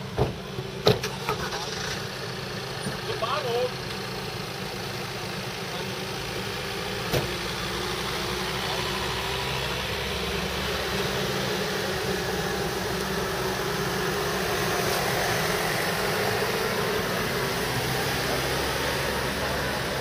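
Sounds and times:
van engines running: 0:00.0 - 0:20.0.

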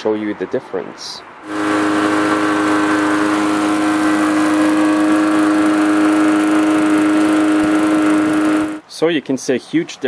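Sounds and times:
lawnmower engine running: 0:01.4 - 0:08.8.

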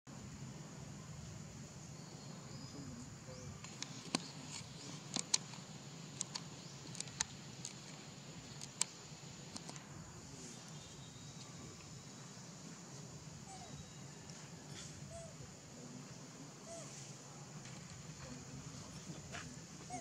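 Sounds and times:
faint high-pitched insect drone: 0:00.1 - 0:20.0
sharp ticks and clicks: 0:03.6 - 0:09.9.

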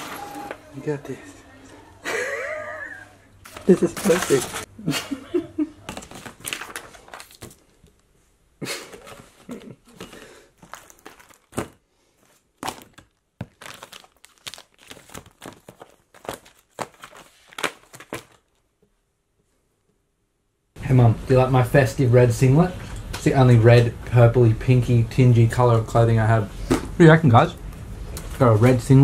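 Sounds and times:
paper rustling and crinkling: 0:03.4 - 0:04.7, 0:05.8 - 0:08.0, 0:08.8 - 0:18.7.

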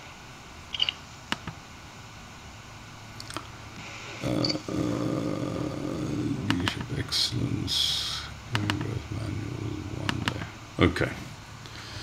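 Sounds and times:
low steady background hum: 0:00.0 - 0:12.0
pitched hum: 0:00.0 - 0:12.0
computer mouse clicks: 0:00.7 - 0:01.6, 0:08.5 - 0:08.9, 0:10.0 - 0:10.4.

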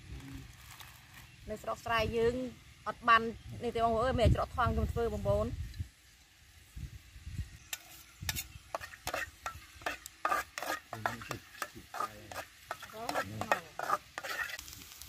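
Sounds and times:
food sizzling in oil: 0:00.0 - 0:15.0
metal ladle scraping a wok: 0:07.7 - 0:14.7.

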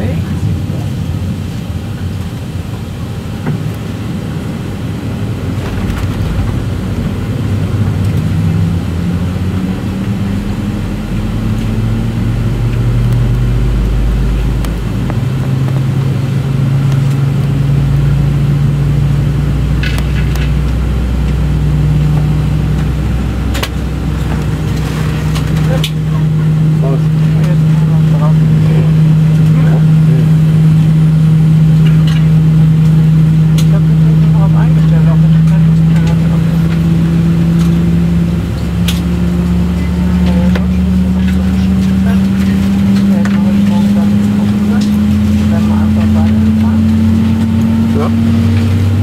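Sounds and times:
jet engine spooling up: 0:04.1 - 0:11.4.

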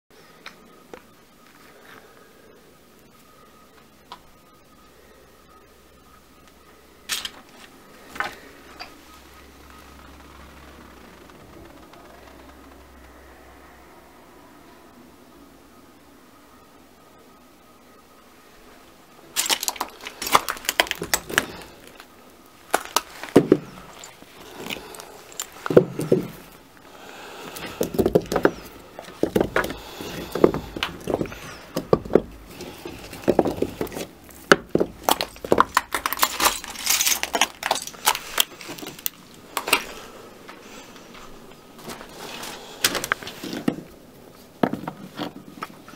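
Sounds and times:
clay blocks clacking together: 0:27.5 - 0:39.8.

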